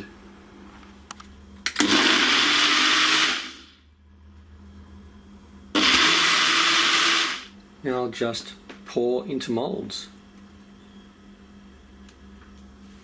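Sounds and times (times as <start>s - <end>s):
blender motor running: 1.8s - 3.8s, 5.8s - 7.5s.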